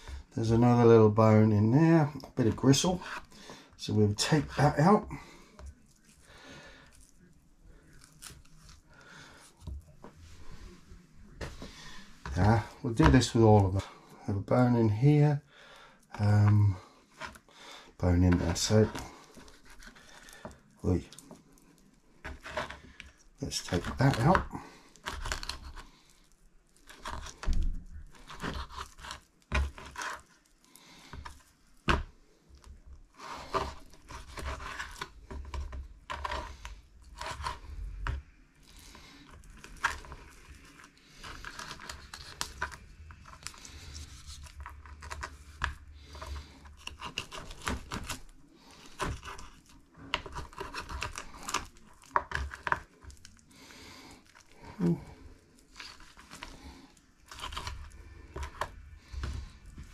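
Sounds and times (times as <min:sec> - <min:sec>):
meat tearing: 0:05.5 - 0:09.6, 0:18.3 - 0:59.9
knife scraping: 0:22.2 - 0:25.9, 0:26.8 - 0:30.4, 0:33.1 - 0:53.2.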